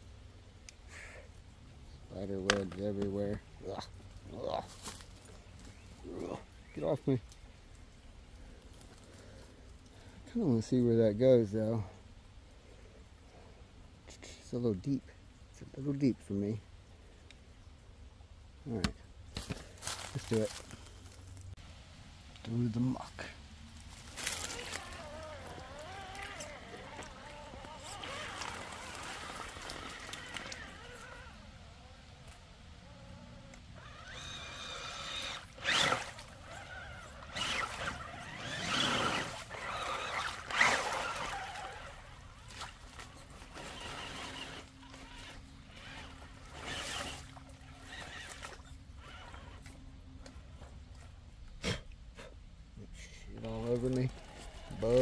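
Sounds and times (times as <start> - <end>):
small water splashes: 23.9 - 31.6, 33.8 - 49.7
electric motor whining: 23.9 - 49.8.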